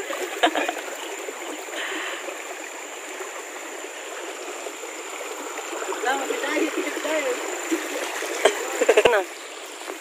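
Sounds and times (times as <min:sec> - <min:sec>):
river water trickling: 0:00.0 - 0:10.0
water splash: 0:05.8 - 0:09.3.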